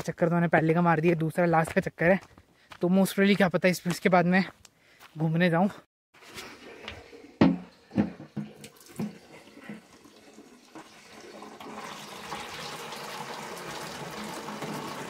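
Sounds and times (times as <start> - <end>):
tap water running into can: 6.8 - 15.0
plastic jerrycan knocks: 7.4 - 9.2.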